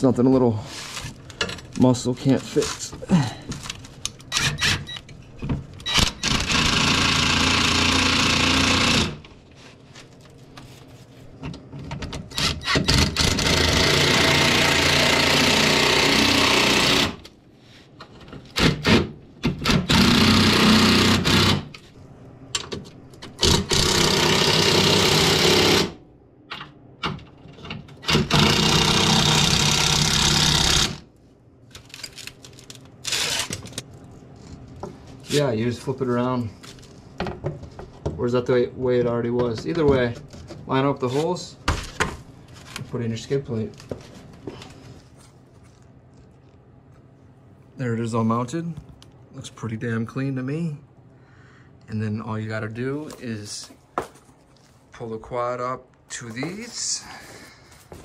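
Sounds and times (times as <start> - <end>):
power tool driving bolts: 4.3 - 5.0, 5.8 - 9.2, 12.2 - 17.3, 18.6 - 21.8, 23.2 - 26.0, 28.0 - 31.0, 33.0 - 33.7.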